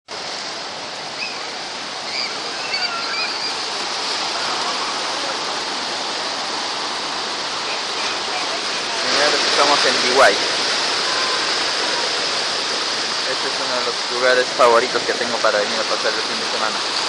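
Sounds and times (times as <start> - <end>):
surf breaking: 0.1 - 17.0.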